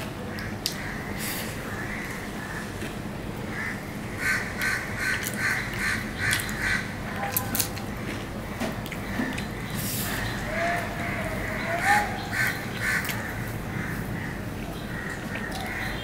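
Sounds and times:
bird calling: 8.4 - 16.0.

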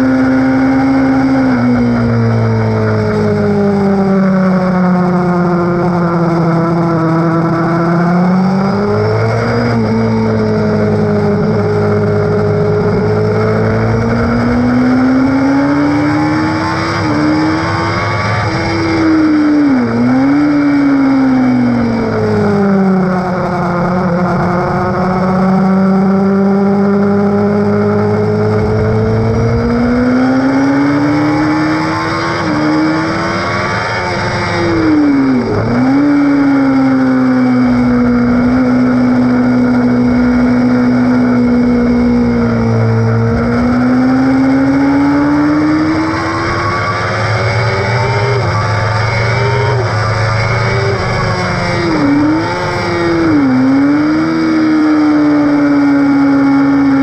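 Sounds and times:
motorcycle engine at high revs: 0.0 - 57.0
wind rush: 28.2 - 33.3.

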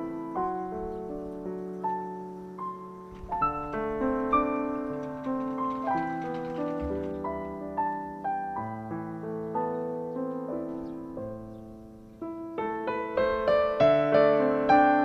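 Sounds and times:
gentle piano music: 0.0 - 15.0.

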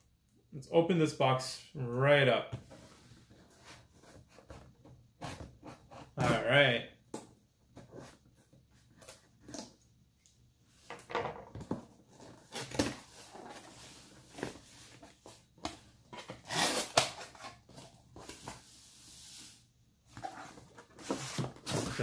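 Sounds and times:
cardboard scraping and rustling: 20.1 - 22.0.

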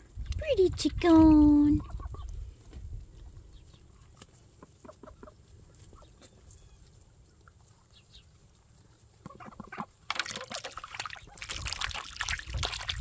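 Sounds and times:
chickens clucking faintly: 1.8 - 10.0.

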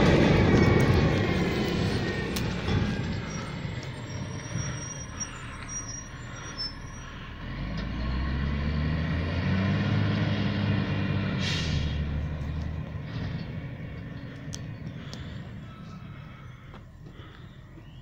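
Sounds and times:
truck engine running: 0.0 - 18.0
short hiss: 11.4 - 12.0.

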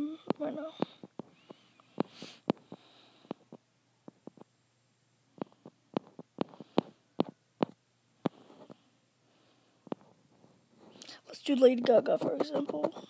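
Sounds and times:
fingers tapping a touchscreen: 5.4 - 8.8, 11.8 - 13.0.

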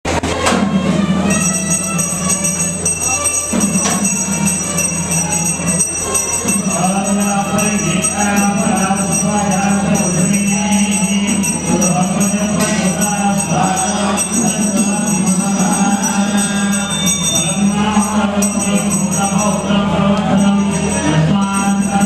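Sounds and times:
hand bell ringing: 1.3 - 22.0
men chanting in a drone: 6.4 - 22.0.

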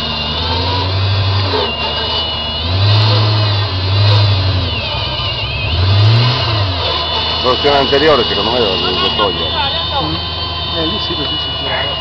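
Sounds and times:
buggy engine revving: 0.0 - 12.0
high whine: 0.0 - 12.0.

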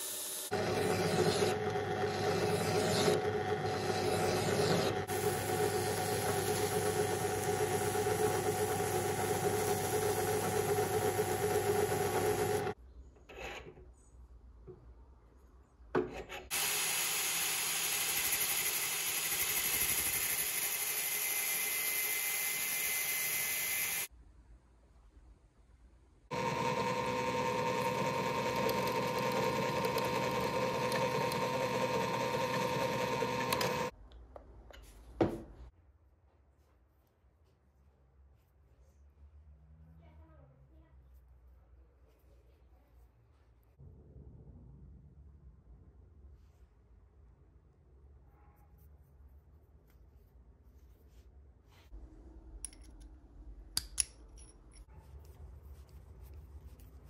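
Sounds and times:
angle grinder grinding steel: 0.0 - 12.8, 26.3 - 33.9
drill press drilling steel: 0.0 - 12.8, 16.5 - 24.1, 26.3 - 33.9
drill press running: 0.0 - 12.8, 16.5 - 24.1, 26.3 - 33.9.

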